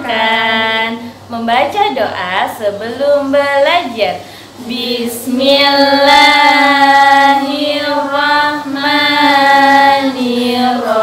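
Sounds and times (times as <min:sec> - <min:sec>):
women chanting in unison: 0:04.6 - 0:11.0.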